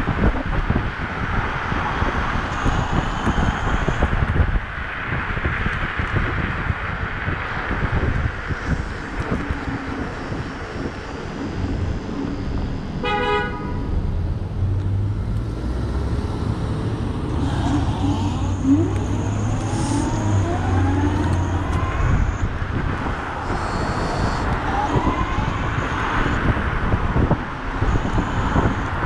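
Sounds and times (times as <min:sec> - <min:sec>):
street traffic rumble: 0:00.0 - 0:29.0
vehicle horn toot: 0:13.0 - 0:13.8
rising whines: 0:13.8 - 0:29.0.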